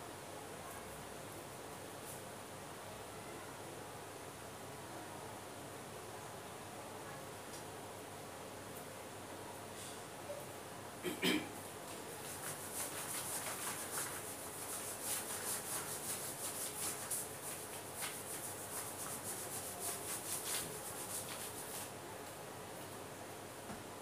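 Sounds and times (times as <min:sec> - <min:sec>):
cloth rubbing plastic sheet: 0:12.1 - 0:21.9.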